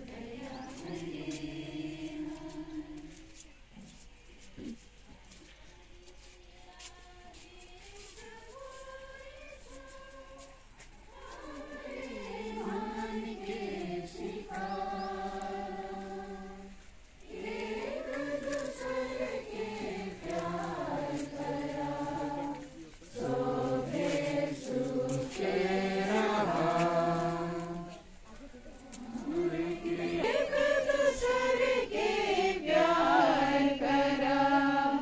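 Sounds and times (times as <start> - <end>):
group singing a hymn: 0.0 - 3.8, 6.8 - 35.0.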